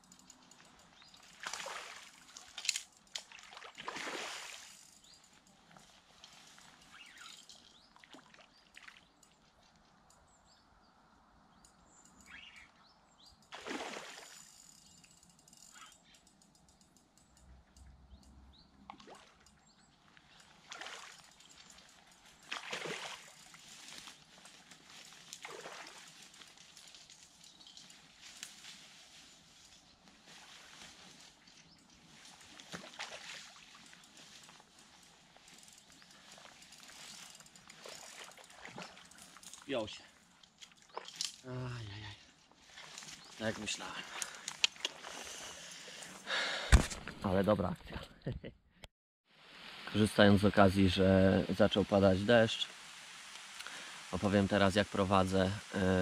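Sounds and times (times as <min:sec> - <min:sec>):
fish splashing at surface: 0:13.6 - 0:14.5, 0:22.5 - 0:23.6.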